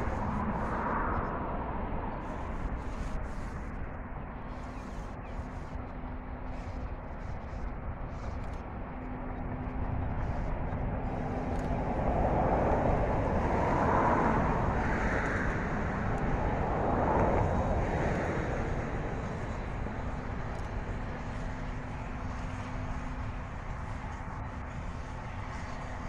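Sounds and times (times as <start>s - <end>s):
steam locomotive rumble: 0.0s - 3.7s.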